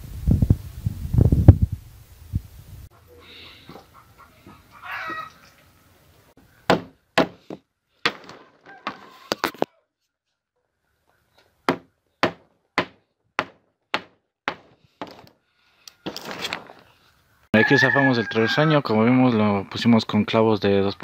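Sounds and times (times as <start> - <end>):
hatchet striking wood: 6.7 - 8.4, 11.7 - 15.3.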